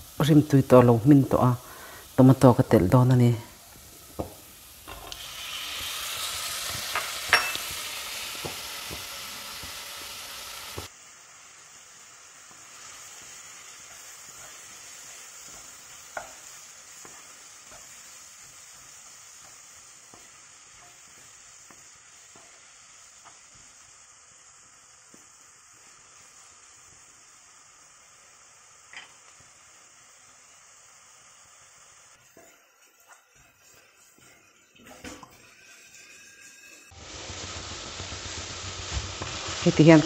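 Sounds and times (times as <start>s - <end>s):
tomatoes sizzling in hot oil: 0.0s - 40.0s
spatula clacking on pan: 13.2s - 23.4s.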